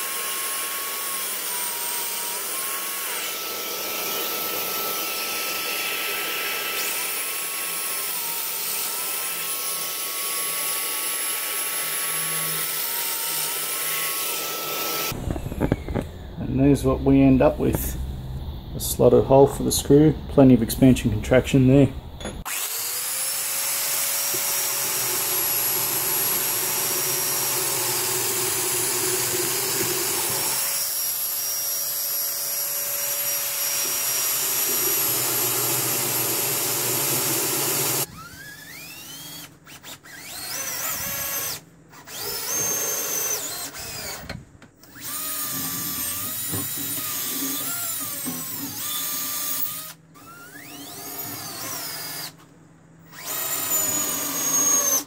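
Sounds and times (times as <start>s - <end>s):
cordless drill bursts: 0.0s - 15.8s, 22.4s - 52.4s, 53.0s - 55.0s
joiner cutting hardwood: 22.4s - 39.4s, 40.2s - 50.0s, 53.2s - 55.0s
dust extractor running: 34.4s - 38.1s.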